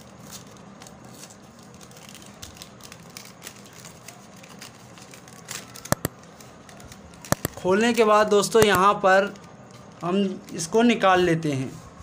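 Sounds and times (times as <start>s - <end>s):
paper envelope tearing: 0.0s - 9.4s
sharp paper snaps: 0.2s - 9.8s.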